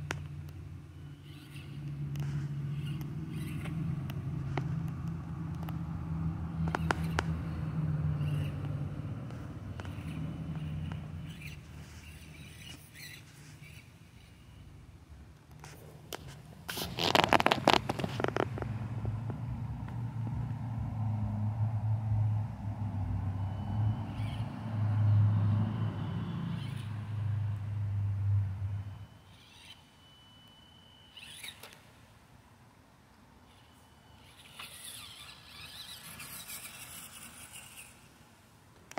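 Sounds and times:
small electric motor whirring: 0:00.0 - 0:14.7, 0:23.0 - 0:32.0, 0:33.4 - 0:38.2
clicks and scrapes: 0:15.5 - 0:18.8.

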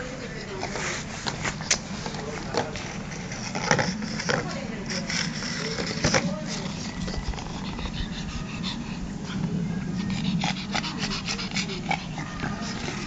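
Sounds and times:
steady low hum: 0:00.0 - 0:13.0
puppy mouth and nose clicks: 0:01.2 - 0:02.8.

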